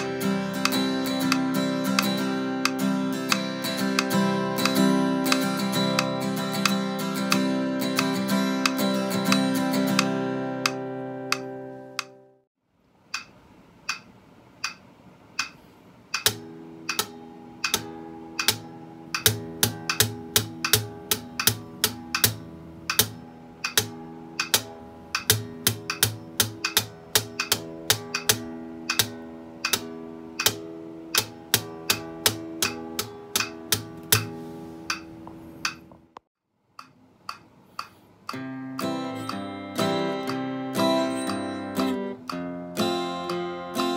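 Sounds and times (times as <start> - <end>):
acoustic guitar picking: 0.0 - 12.4, 16.2 - 35.9, 38.3 - 43.9
strummed guitar chord: 0.0 - 12.4, 38.4 - 43.9.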